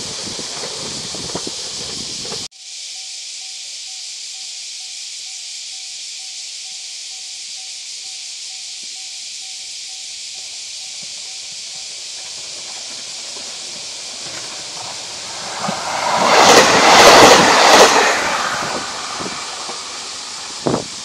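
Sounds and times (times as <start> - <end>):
diesel train passing: 0.0 - 2.5, 11.1 - 21.0.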